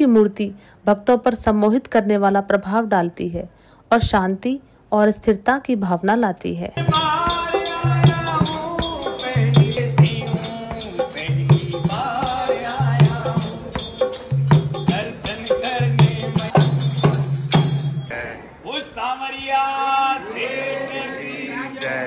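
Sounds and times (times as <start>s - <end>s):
group singing call-and-response: 6.8s - 17.2s, 18.1s - 22.0s
jingling percussion: 6.8s - 18.1s, 21.8s - 22.0s.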